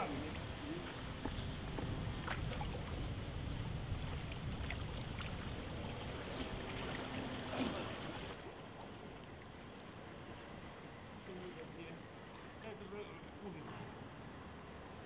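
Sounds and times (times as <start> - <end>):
steady low rumble: 0.0 - 7.0
water sloshing and trickling: 0.0 - 14.2.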